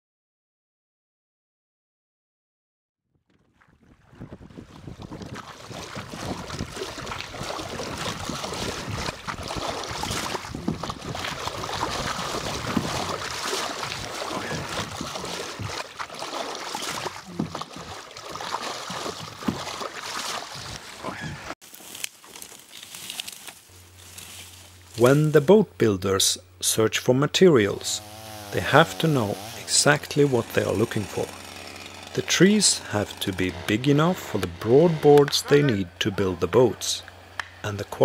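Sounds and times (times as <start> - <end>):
water splashing along wooden hull: 3.3 - 21.6, 27.9 - 38.0.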